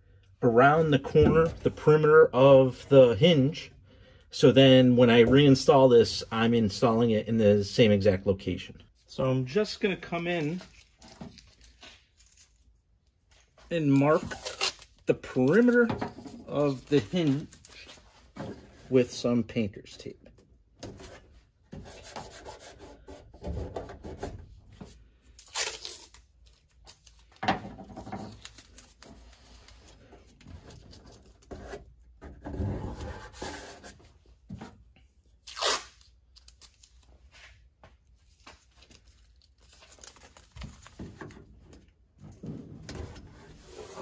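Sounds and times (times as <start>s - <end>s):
tape ripping off roll: 25.4s - 26.3s, 35.4s - 36.2s.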